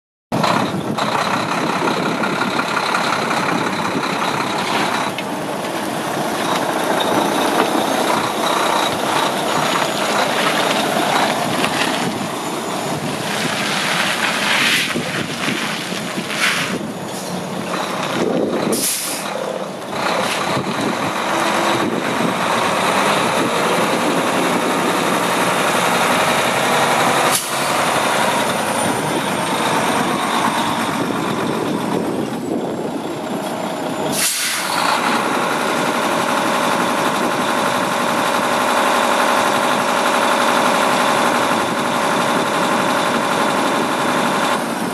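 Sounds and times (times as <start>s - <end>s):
truck diesel engine running: 0.3s - 44.9s
air brakes hissing: 16.4s - 17.6s, 18.7s - 19.6s, 27.2s - 27.9s, 34.0s - 35.0s.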